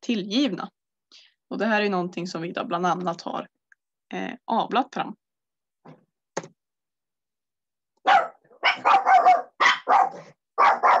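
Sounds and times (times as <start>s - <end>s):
dog barking: 8.0s - 11.0s.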